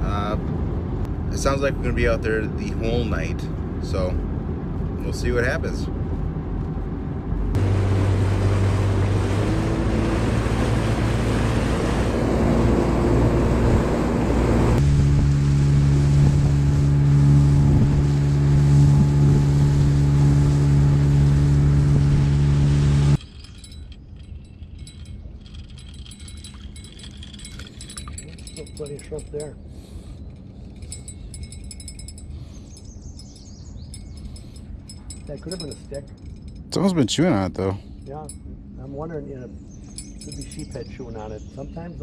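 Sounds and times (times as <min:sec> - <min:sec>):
wind: 0:00.0 - 0:42.0
outboard motor running: 0:07.6 - 0:23.8.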